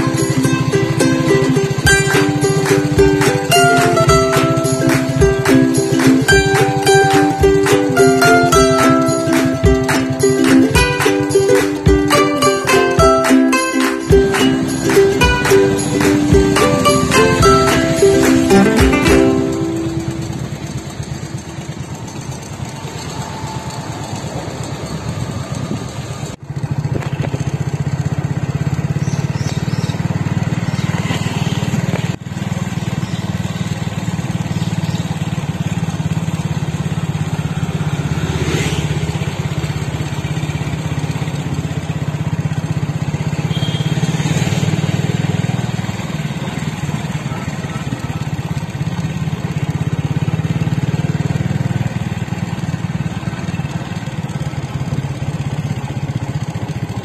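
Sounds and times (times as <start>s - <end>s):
small vehicle engine running: 0.0s - 57.0s.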